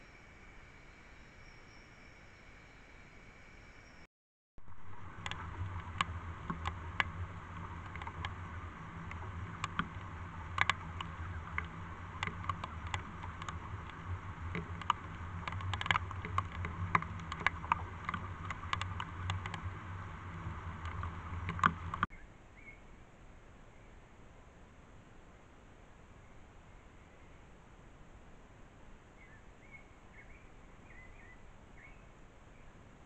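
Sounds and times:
small splashes and ticks: 0:04.6 - 0:22.1
stream running water: 0:04.6 - 0:22.1.

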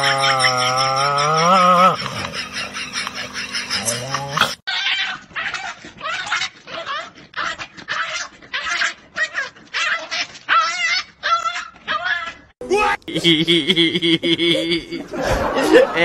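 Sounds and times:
puppy yipping and whimpering: 0:00.1 - 0:12.4.

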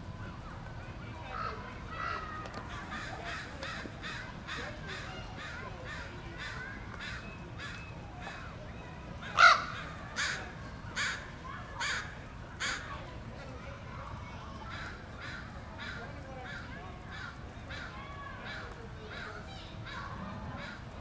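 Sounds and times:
crows cawing: 0:09.2 - 0:11.2, 0:11.8 - 0:12.9, 0:14.7 - 0:19.3.

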